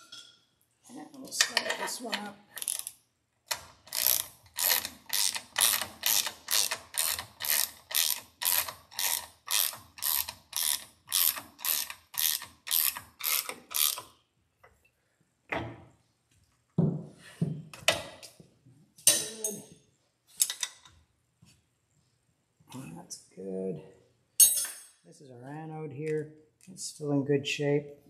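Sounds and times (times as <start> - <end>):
ratchet wrench clicking: 2.6 - 14.1.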